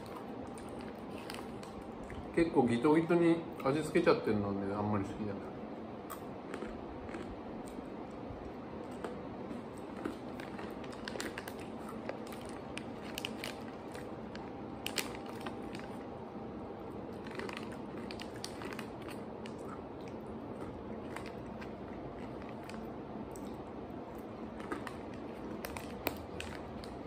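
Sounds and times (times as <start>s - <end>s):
crunching and chewing snacks: 0.0s - 2.5s, 6.0s - 27.0s
plastic bag crinkling: 9.9s - 16.1s, 17.1s - 19.6s.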